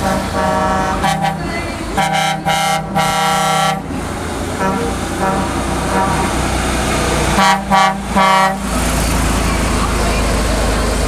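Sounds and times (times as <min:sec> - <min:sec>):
truck horn blasts: 0:00.0 - 0:06.5, 0:07.2 - 0:08.9
diesel truck engine rumble: 0:00.0 - 0:11.0.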